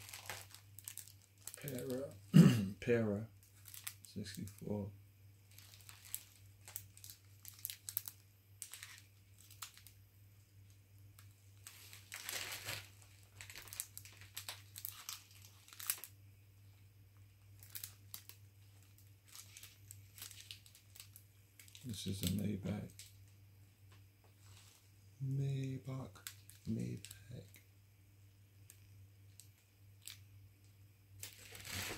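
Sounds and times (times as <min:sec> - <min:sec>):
plastic and cardboard box crackling: 0:00.0 - 0:02.0, 0:03.6 - 0:04.5, 0:05.5 - 0:09.9, 0:11.6 - 0:16.1, 0:17.6 - 0:23.1, 0:31.2 - 0:31.9
steady low hum: 0:00.0 - 0:31.9.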